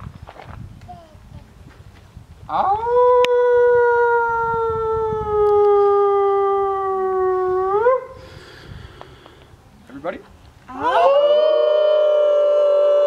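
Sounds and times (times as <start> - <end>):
long howl: 2.5 - 8.2, 10.7 - 13.0.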